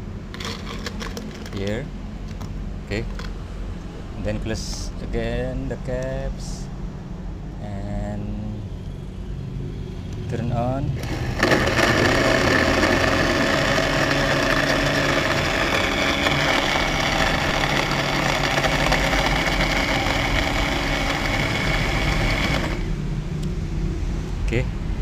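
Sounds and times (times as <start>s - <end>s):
ice rattling in blender: 0.3s - 1.6s, 11.0s - 22.9s
blender motor whine: 11.0s - 23.0s.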